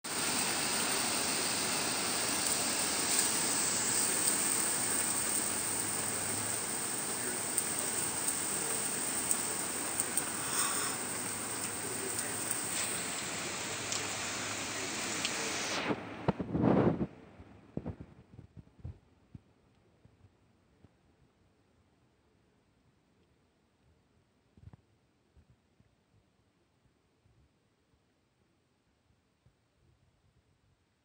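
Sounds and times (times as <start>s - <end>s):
faint clicks: 4.0s - 13.3s, 13.9s - 14.2s, 15.2s - 15.4s.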